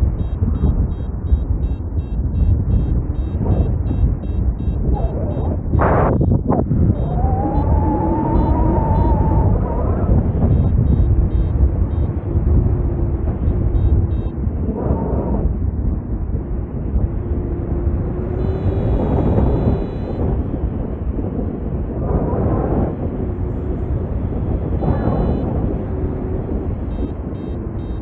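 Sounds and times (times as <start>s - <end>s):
faint steady high tone: 0.0s - 12.1s, 18.4s - 20.2s, 24.8s - 25.6s
wind rushing over microphone: 0.0s - 28.0s
faint short high beeps: 0.1s - 6.3s, 24.8s - 25.5s.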